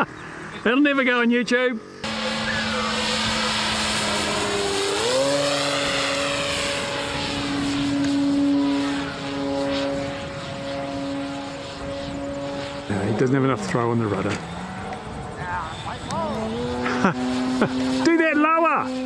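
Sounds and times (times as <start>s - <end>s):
model aeroplane motor whine: 1.8s - 19.0s.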